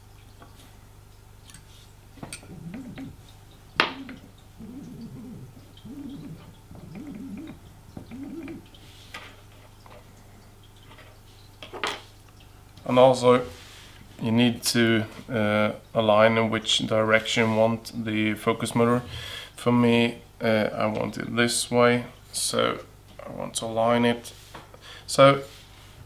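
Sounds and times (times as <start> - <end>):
motor humming: 2.2 - 8.8.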